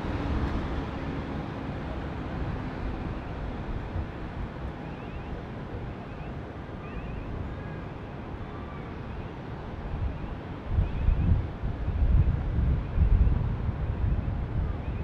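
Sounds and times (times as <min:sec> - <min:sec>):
wind buffeting microphone: 0:09.4 - 0:15.0.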